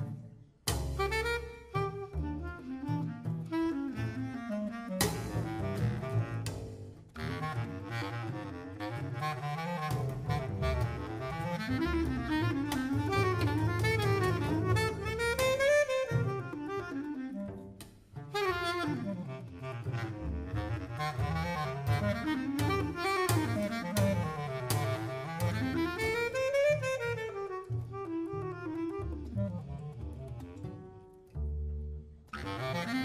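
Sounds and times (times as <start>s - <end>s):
bass clarinet melody: 0.0s - 33.0s
double bass notes: 0.0s - 33.0s.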